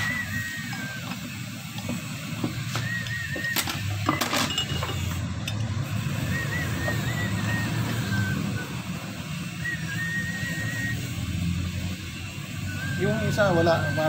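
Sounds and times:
wavering high whistle: 0.0 - 5.2, 5.8 - 14.0
sharp metal clinks: 4.0 - 5.8.

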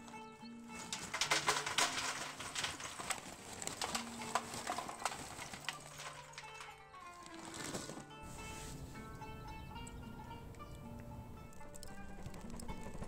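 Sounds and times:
charcoal clattering into metal grill: 0.0 - 8.6
soft background music: 0.0 - 13.0.

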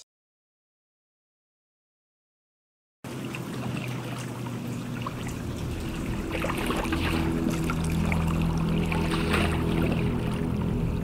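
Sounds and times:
water drips and splashes: 3.1 - 11.0
water flowing and trickling: 3.1 - 11.0
background music low notes: 4.6 - 11.0.

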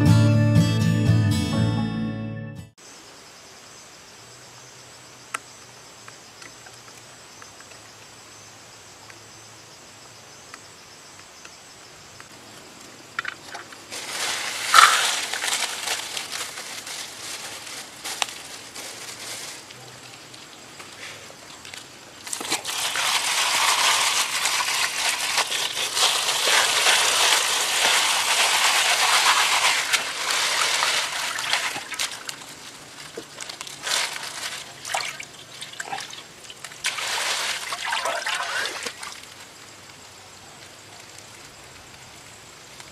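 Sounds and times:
insect drone: 2.8 - 42.9
water sloshing and splashing: 21.4 - 39.4.

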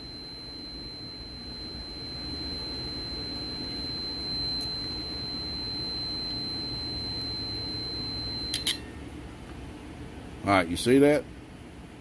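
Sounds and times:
continuity tester beeping: 0.0 - 8.9.

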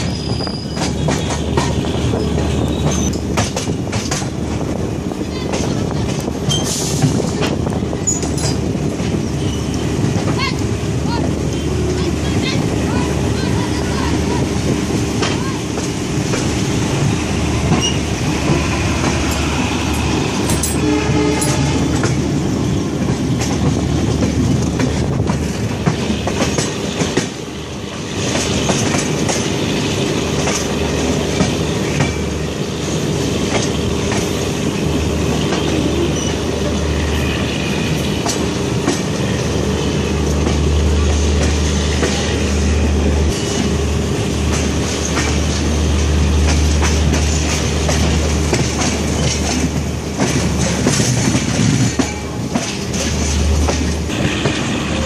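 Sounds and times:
train wheels rumbling on rail: 0.0 - 55.0
wheels clicking over rail joints: 0.7 - 14.4, 44.5 - 55.0.

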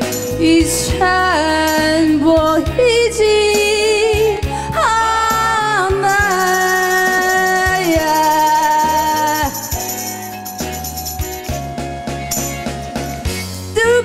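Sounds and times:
woman singing a ballad: 0.0 - 10.6, 13.7 - 14.0
karaoke backing track: 0.0 - 14.0.

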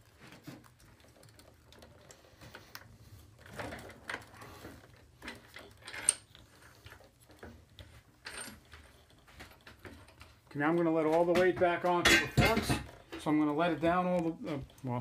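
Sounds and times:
metal nut clicking and rattling: 5.2 - 6.4.

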